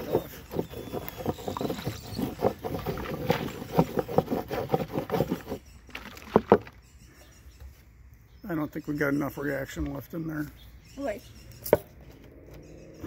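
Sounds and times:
plastic canister shaken clattering: 0.0 - 6.8.

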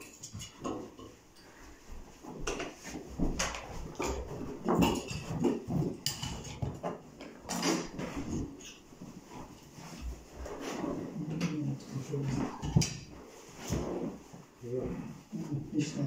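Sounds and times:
clothing rustling: 7.8 - 16.0.

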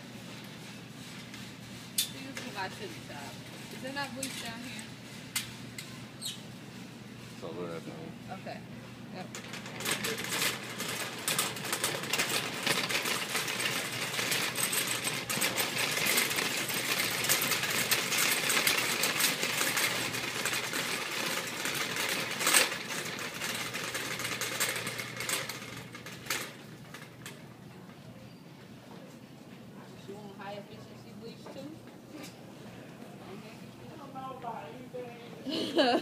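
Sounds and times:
shopping cart rattling: 0.2 - 6.4, 9.2 - 27.6.

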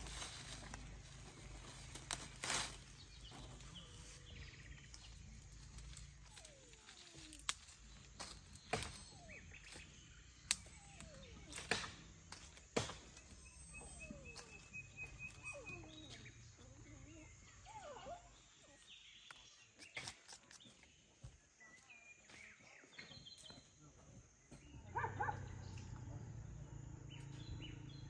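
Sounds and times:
birds calling: 0.0 - 23.8, 24.4 - 28.0
leaf stalks snapping: 1.7 - 2.9, 10.5 - 12.4.

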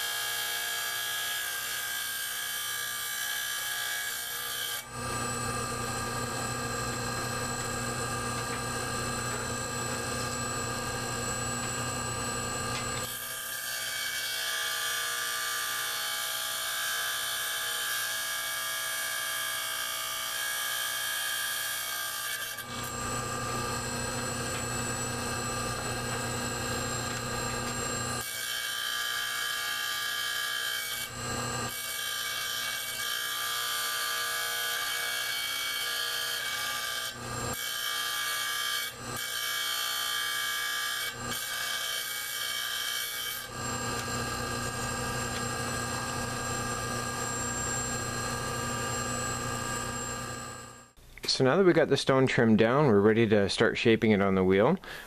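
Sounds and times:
grinding wheel motor hum: 4.9 - 13.2, 22.7 - 28.3, 43.5 - 50.9.

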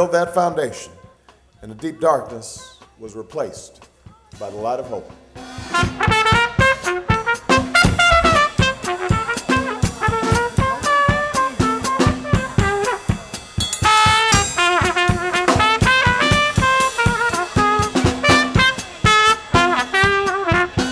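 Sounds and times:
brass band jazz: 5.4 - 20.9
snare drum and cymbal: 5.4 - 20.9
trumpet and trombone: 5.6 - 20.9.

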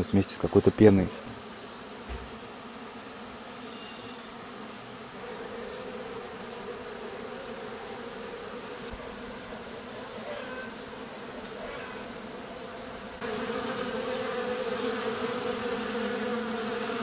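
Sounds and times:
buzzing hum: 0.2 - 17.0.

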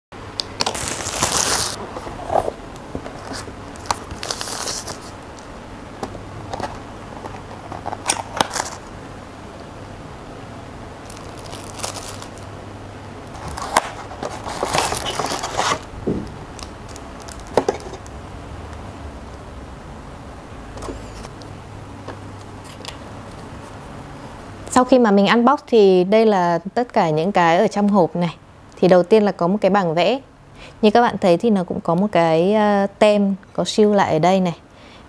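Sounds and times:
plastic packaging crinkling: 0.4 - 5.5, 6.6 - 8.9, 11.0 - 12.5, 13.3 - 18.2
cardboard inserts lifted out: 13.4 - 16.3.

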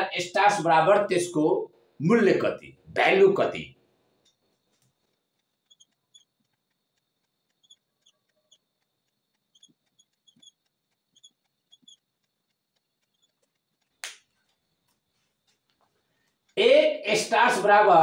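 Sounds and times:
marker squeaking on whiteboard: 4.3 - 14.0
marker tip tapping: 4.3 - 14.3.

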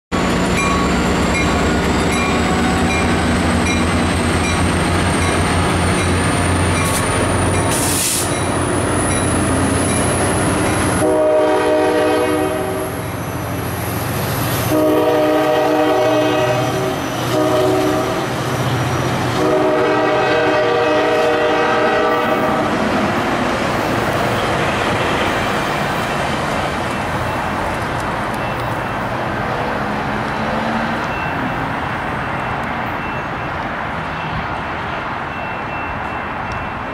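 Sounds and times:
diesel locomotive engine running hard: 0.1 - 36.9
train horn blasts: 10.9 - 13.0, 14.6 - 18.3, 19.3 - 22.7.

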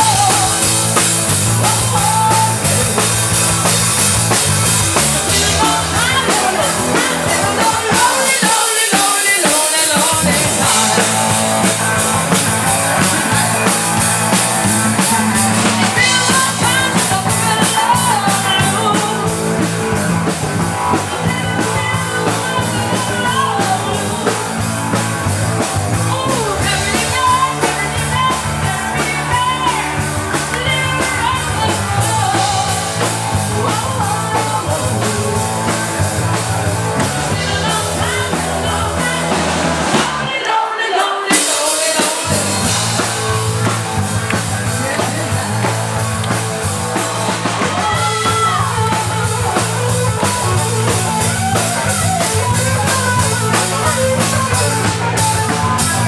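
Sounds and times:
woman singing: 0.0 - 0.8, 1.5 - 3.1, 5.2 - 11.4, 14.9 - 19.9, 20.8 - 24.6, 26.0 - 35.8, 37.2 - 43.1, 47.4 - 55.4
drum kit: 0.0 - 56.0
electric guitar: 0.0 - 56.0.

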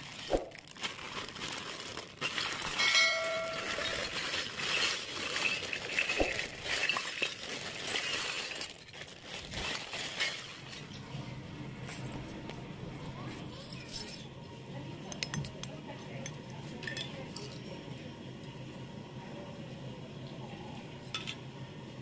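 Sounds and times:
plastic bag crinkling: 0.0 - 10.9
small metal pieces clattering on concrete: 2.2 - 10.7
small steel piece ringing: 2.8 - 3.9.

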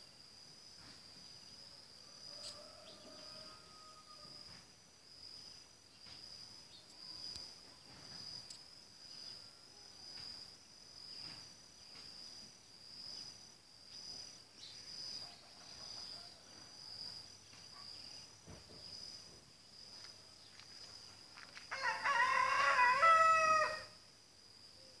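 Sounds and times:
high insect chirp: 0.0 - 25.0
rooster crowing: 1.8 - 4.6, 21.7 - 24.0.

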